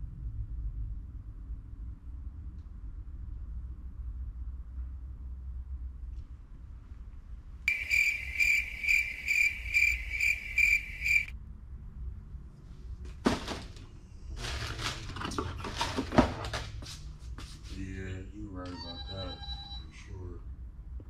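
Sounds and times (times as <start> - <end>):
electronic ringing tone: 7.7 - 11.3, 18.8 - 19.9
rustling and clattering handling: 13.1 - 16.8.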